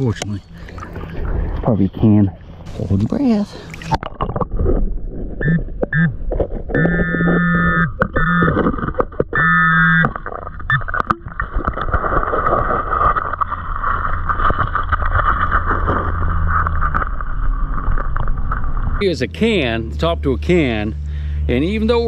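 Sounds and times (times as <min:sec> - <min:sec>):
gravel rushing underwater: 0:00.7 - 0:09.4, 0:10.0 - 0:19.0
buzzing alert tone: 0:06.8 - 0:08.6.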